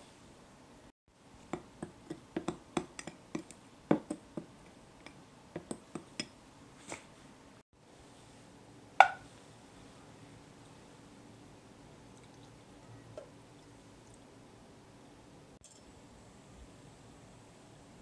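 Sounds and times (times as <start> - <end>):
knock on metal saucepan: 9.0 - 9.2.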